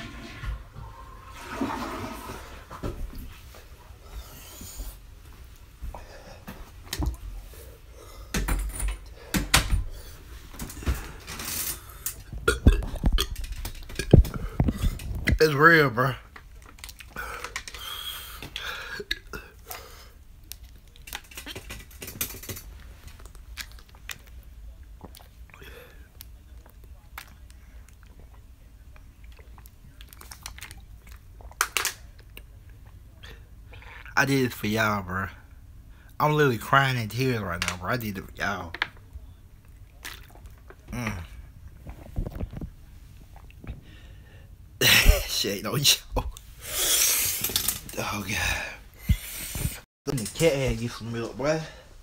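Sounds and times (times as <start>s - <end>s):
breath: 4.0s - 5.0s, 5.9s - 6.6s, 7.5s - 8.4s, 17.2s - 19.0s, 43.8s - 44.5s, 48.5s - 49.8s
man drinking and swallowing: 9.2s - 15.5s, 16.8s - 20.0s, 21.0s - 34.2s, 39.6s - 44.1s, 46.2s - 49.8s.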